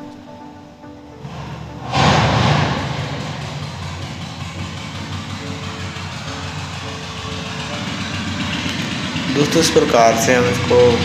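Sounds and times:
background music sustained tones: 0.0s - 11.0s.

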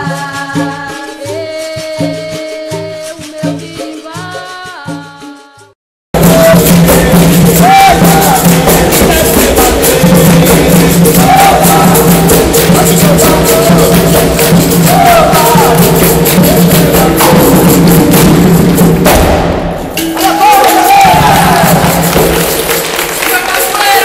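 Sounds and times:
hand drum: 0.0s - 24.0s
voices singing: 6.2s - 18.5s, 20.0s - 22.2s
tambourine: 6.2s - 19.1s, 20.2s - 24.0s
hand-clapping: 20.0s - 24.0s.

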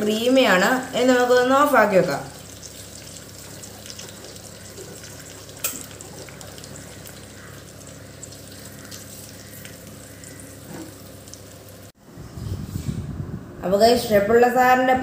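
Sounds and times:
curry sizzling in a pan: 1.0s - 11.9s.

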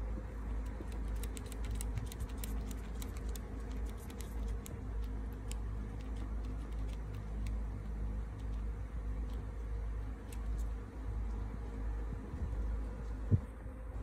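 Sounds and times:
steady low rumble: 0.0s - 14.0s
kittens suckling wet clicks: 0.5s - 9.5s.

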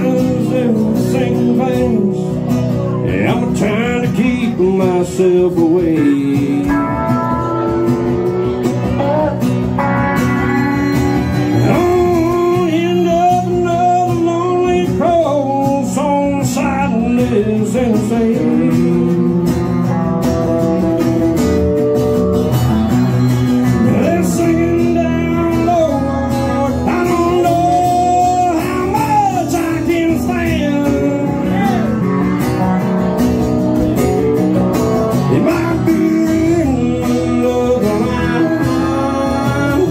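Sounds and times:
strummed acoustic guitar: 0.0s - 39.9s
pedal steel guitar sliding notes: 6.2s - 13.5s.

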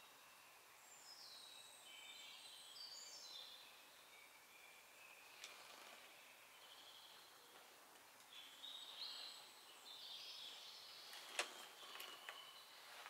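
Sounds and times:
faint bird chirps: 0.0s - 13.0s.

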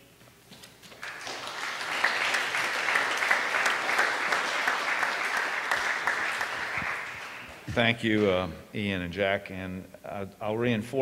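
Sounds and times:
audience clapping: 0.9s - 8.4s.

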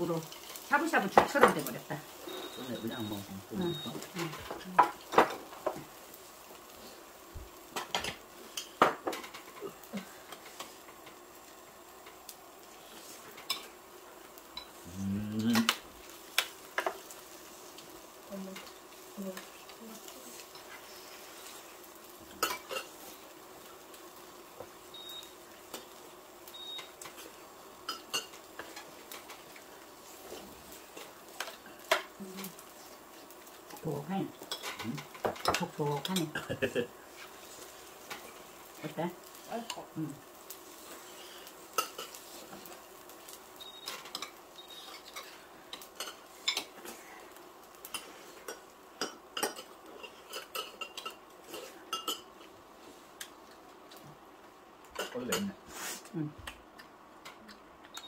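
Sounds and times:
pan sizzling: 0.0s - 58.0s
metal spoons scraping and clinking: 47.9s - 52.3s.

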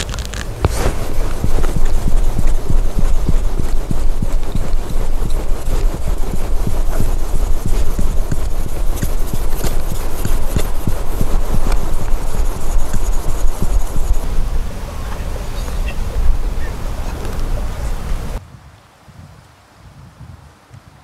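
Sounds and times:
chisel rubbing on whetstone: 0.7s - 14.5s.

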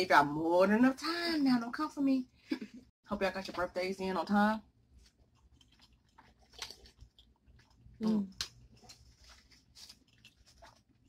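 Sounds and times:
chewing spaghetti: 5.0s - 11.0s.

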